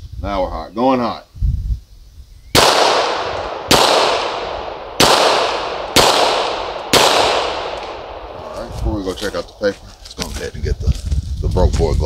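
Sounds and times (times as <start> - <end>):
pistol shots with echo: 2.6 - 8.5.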